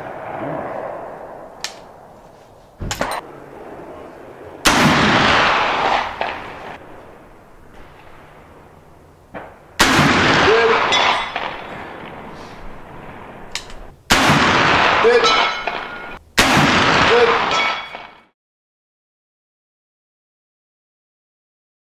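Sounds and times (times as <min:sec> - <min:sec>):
heavy rifle shots: 0:02.8 - 0:07.0, 0:09.3 - 0:18.3.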